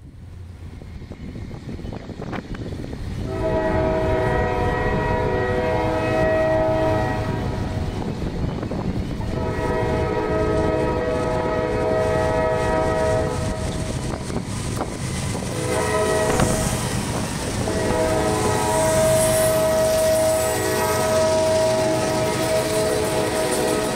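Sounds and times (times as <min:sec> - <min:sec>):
train rumbling: 0:00.0 - 0:23.9
train air horn blasts: 0:03.2 - 0:08.0, 0:09.3 - 0:13.9, 0:15.5 - 0:23.9.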